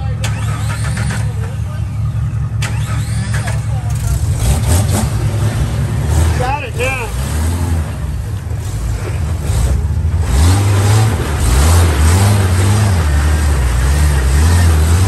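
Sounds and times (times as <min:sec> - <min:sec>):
vehicle engine revving: 0:00.0 - 0:15.0.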